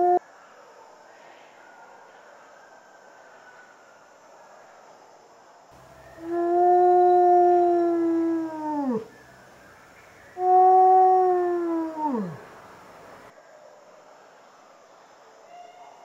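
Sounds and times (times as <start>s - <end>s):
wolf howling: 0.0s - 0.2s, 6.0s - 9.2s, 10.3s - 13.3s.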